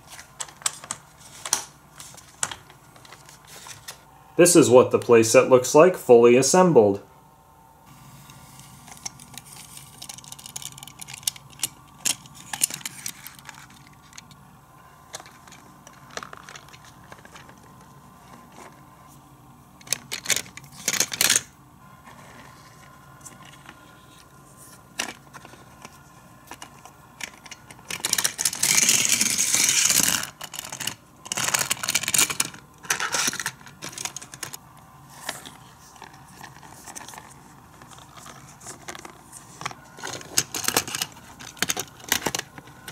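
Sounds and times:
plastic toy clicks and clatters: 9.0 - 14.4, 19.8 - 21.5, 26.5 - 34.6, 40.0 - 42.9
plastic toy rattling: 9.2 - 14.3, 19.8 - 21.5, 26.5 - 34.6.

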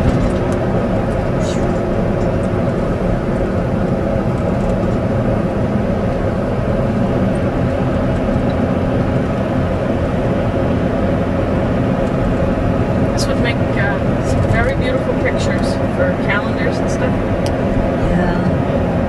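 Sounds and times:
car engine and road hum: 0.0 - 19.0.

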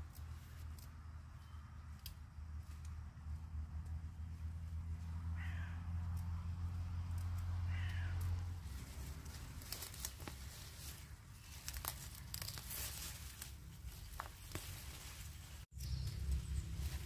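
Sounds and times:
plants tearing and rustling: 6.1 - 17.0.

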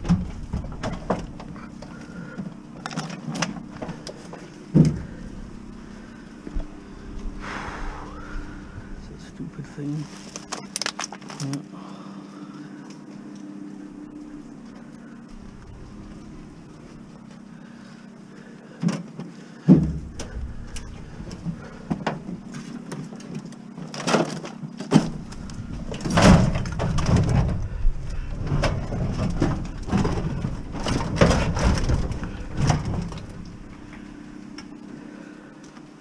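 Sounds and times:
metal cabinet clunking and scraping: 0.0 - 6.0, 19.7 - 34.3
heavy thump: 19.7 - 22.7.

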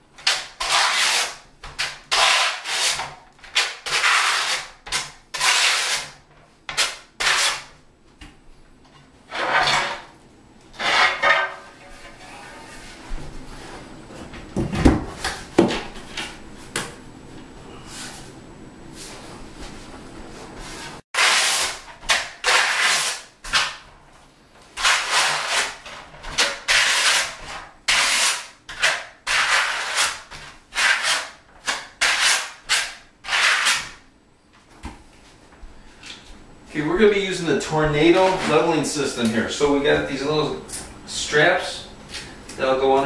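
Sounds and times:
trowel scraping mortar on tile: 0.2 - 7.7, 9.3 - 10.1, 10.8 - 12.8, 21.2 - 23.6, 24.8 - 34.0.

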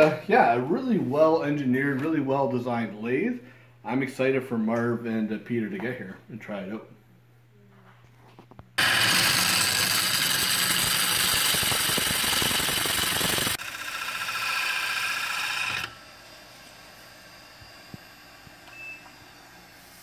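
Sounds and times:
gouge cutting wood on a lathe: 8.8 - 18.6
lathe running: 8.8 - 20.0.

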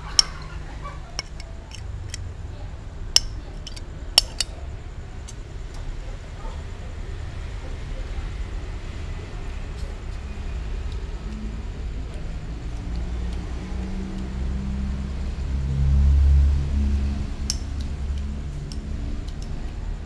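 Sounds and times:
low steady rumble: 0.0 - 20.0.

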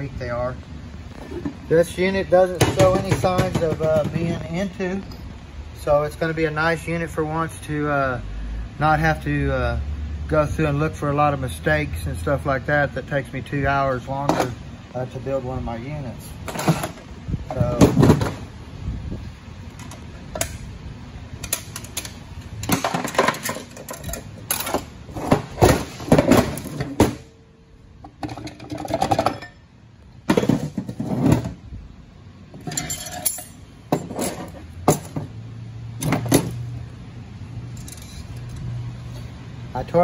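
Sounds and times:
metallic clinks and knocks: 21.4 - 24.9, 32.6 - 35.3, 37.7 - 38.7.

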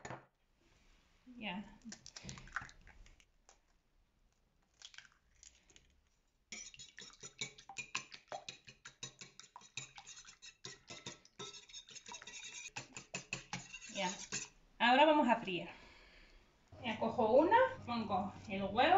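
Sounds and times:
whisk clinking against ceramic bowl: 6.5 - 14.6
egg cracking taps: 6.6 - 10.1, 12.8 - 13.7.

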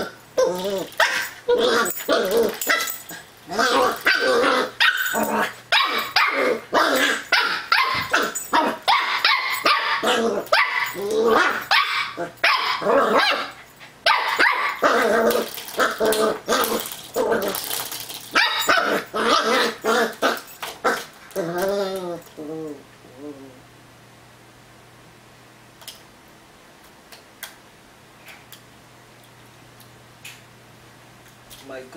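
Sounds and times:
puppy barking and growling: 0.0 - 22.8
puppy yelping: 3.6 - 13.5.

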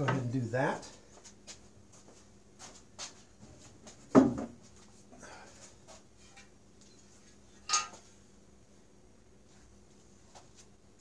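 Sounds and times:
heavy knock on workbench: 4.1 - 4.5
sharp metallic clink: 7.7 - 8.0.

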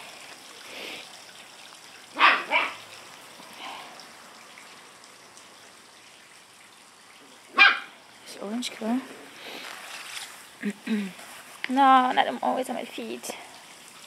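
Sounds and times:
puppy yapping: 2.2 - 2.8, 7.5 - 7.9.

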